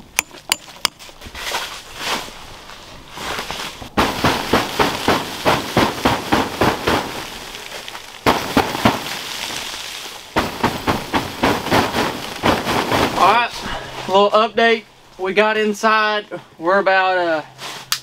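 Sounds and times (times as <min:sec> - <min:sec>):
rapid slaps on tent fabric: 0:03.4 - 0:13.6.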